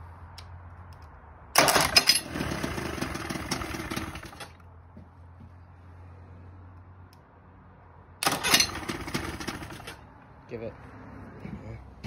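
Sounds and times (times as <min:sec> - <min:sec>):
electric starter cranking engine: 0:01.6 - 0:04.6, 0:08.2 - 0:10.0.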